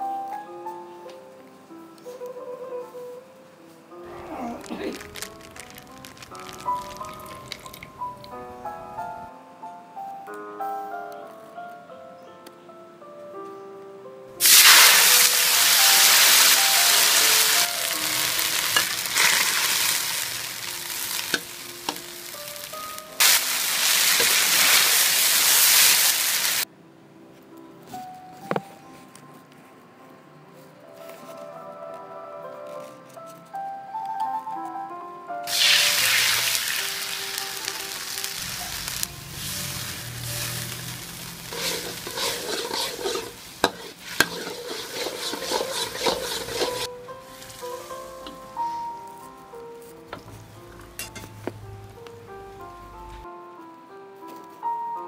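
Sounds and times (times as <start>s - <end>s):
food sizzling in a wok: 4.7s - 8.0s, 14.4s - 26.7s, 35.5s - 48.9s
metal spatula scraping a wok: 17.0s - 22.0s, 38.8s - 46.9s.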